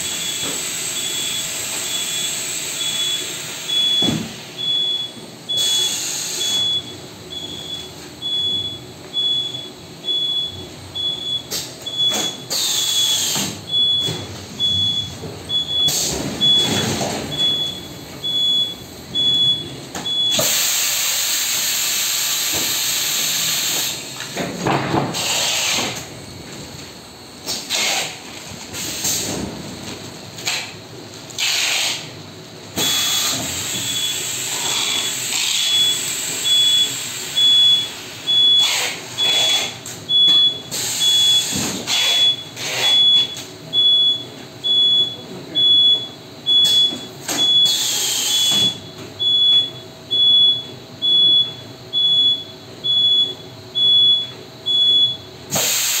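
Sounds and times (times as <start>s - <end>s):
compressed-air hiss: 20.4s - 23.8s, 55.5s - 56.0s.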